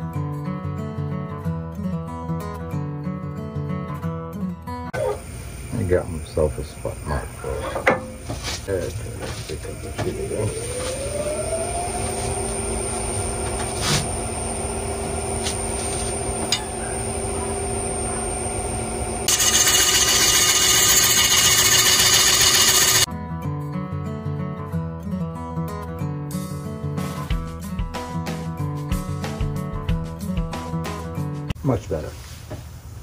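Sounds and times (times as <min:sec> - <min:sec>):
guitar music: 0:00.0 - 0:05.2, 0:23.1 - 0:31.5
wood lathe motor whine: 0:09.6 - 0:23.1
gouge cutting spinning wood: 0:09.8 - 0:23.1.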